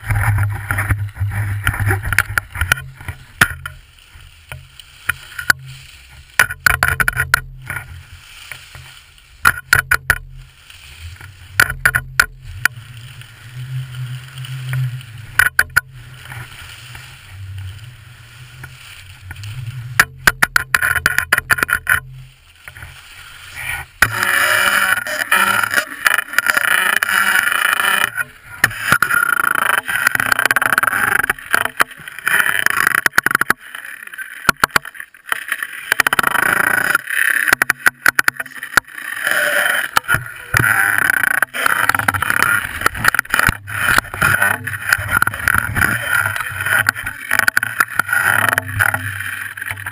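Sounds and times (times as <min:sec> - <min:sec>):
wind rumble on microphone: 0:00.0 - 0:08.2, 0:08.8 - 0:24.1, 0:41.9 - 0:49.9
snow scraping hiss: 0:02.9 - 0:06.4, 0:07.7 - 0:09.4, 0:10.3 - 0:11.6, 0:12.4 - 0:20.2, 0:22.1 - 0:27.6
skis hissing over snow: 0:03.8 - 0:06.3, 0:07.8 - 0:09.4, 0:10.4 - 0:11.5, 0:15.9 - 0:20.0, 0:22.1 - 0:24.6
sharp clattering knocks: 0:06.4 - 0:07.9, 0:09.4 - 0:10.3, 0:20.0 - 0:22.1.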